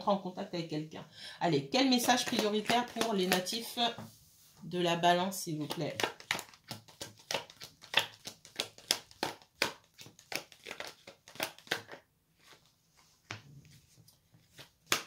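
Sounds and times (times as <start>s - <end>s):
cards being shuffled: 2.0s - 3.7s, 5.6s - 15.0s.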